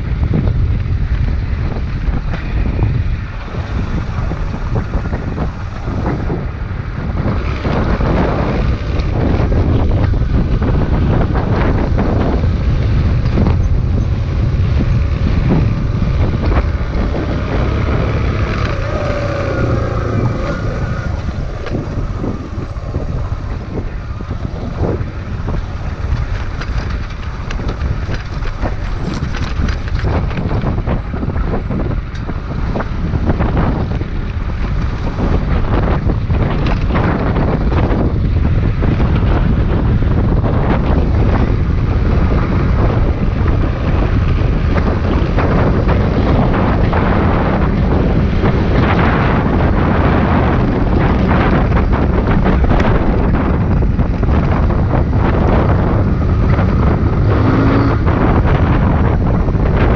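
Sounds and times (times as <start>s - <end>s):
motorcycle engine running: 0.0s - 59.9s
wind on microphone: 0.0s - 59.9s.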